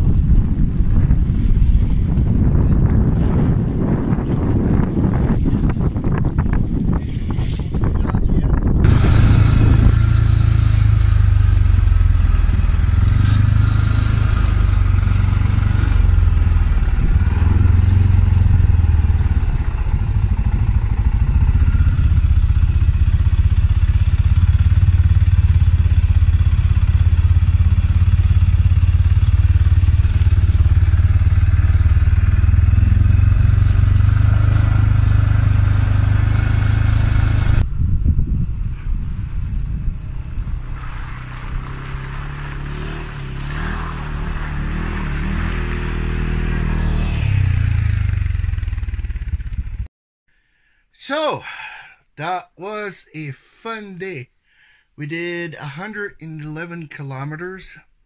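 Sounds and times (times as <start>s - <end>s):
atv engine running: 0.0s - 49.9s.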